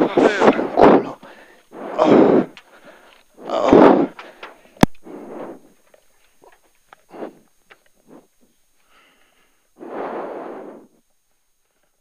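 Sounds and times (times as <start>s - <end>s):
breaths into microphone: 0.5s - 5.8s, 8.1s - 11.0s.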